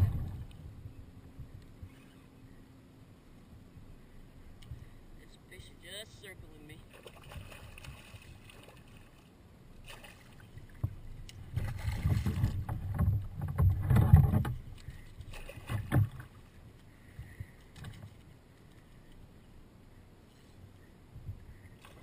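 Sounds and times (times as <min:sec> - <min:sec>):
fish splashing in water: 0:06.9 - 0:09.2, 0:09.8 - 0:10.8.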